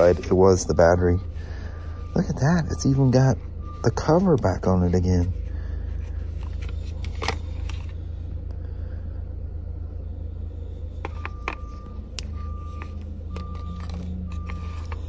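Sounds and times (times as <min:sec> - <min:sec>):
faint beep: 0:00.0 - 0:04.6, 0:09.9 - 0:15.0
steady low rumble: 0:00.0 - 0:15.0
packaging clicks and taps: 0:11.0 - 0:15.0.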